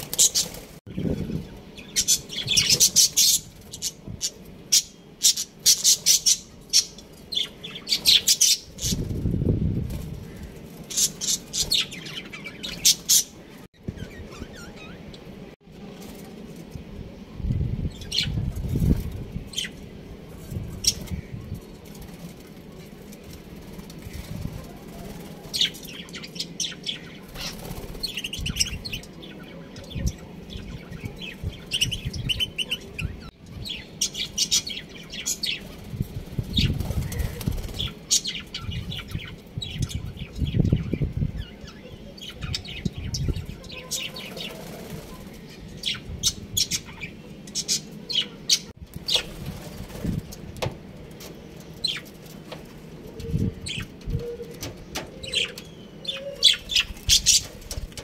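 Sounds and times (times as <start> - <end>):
wings flapping: 0.0 - 0.8, 20.6 - 25.9, 27.2 - 28.5, 35.5 - 38.1, 44.0 - 45.4, 48.9 - 50.6, 56.4 - 58.0.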